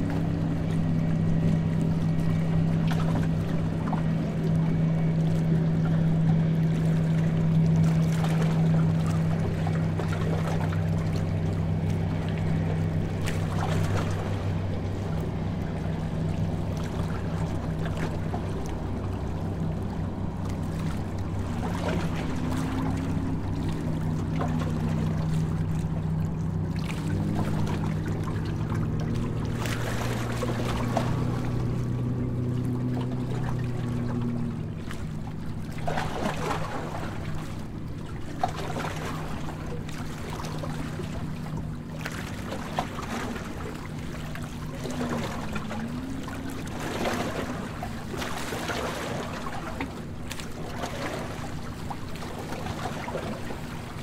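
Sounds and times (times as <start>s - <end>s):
boat engine humming: 0.0s - 54.0s
water splashing along hull: 0.0s - 54.0s.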